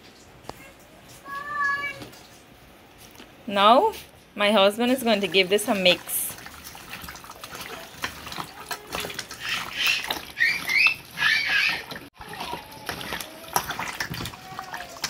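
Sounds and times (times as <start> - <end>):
squelching raw meat kneaded by hand: 4.8 - 15.0.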